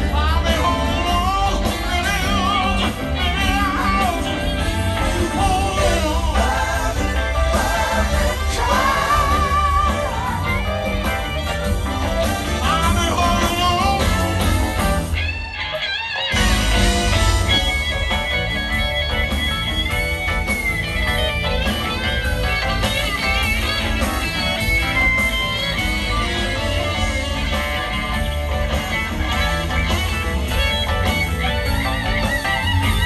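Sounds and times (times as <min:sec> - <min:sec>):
live rock band playing: 0:00.0 - 0:33.0
person singing with vibrato: 0:05.0 - 0:11.0.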